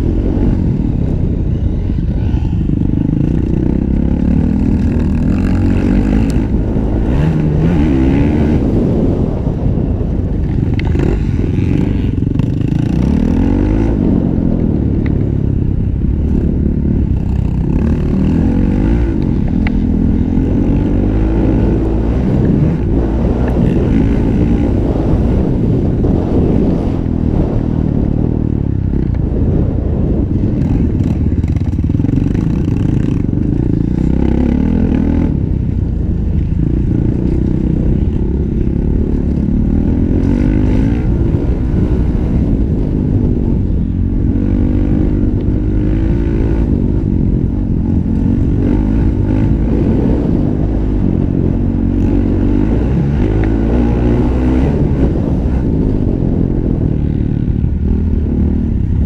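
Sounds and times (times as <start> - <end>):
wind noise: 0.0 - 59.0
motocross engine revving: 2.7 - 9.2.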